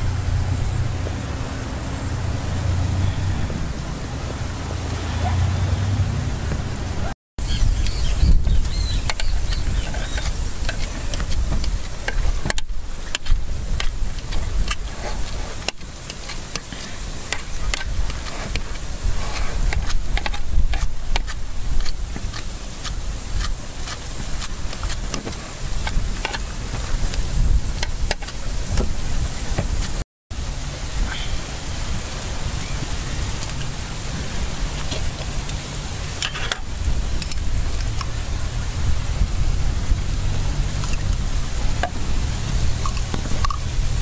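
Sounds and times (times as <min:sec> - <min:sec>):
low rumble: 0:00.0 - 0:15.5.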